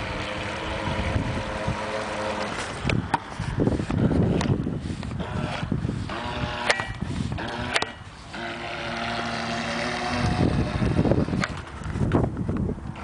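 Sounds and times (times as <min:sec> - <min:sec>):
toy boat motor running: 0:00.0 - 0:12.0
camera rubbing against clothing: 0:02.4 - 0:12.2.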